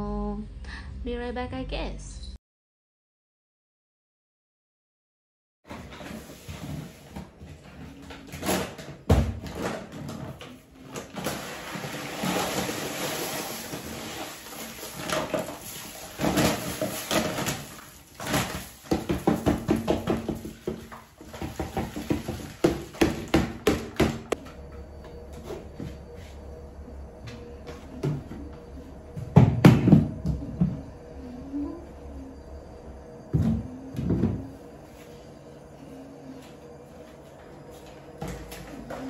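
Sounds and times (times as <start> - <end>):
cat litter pouring into tray: 11.1 - 19.2.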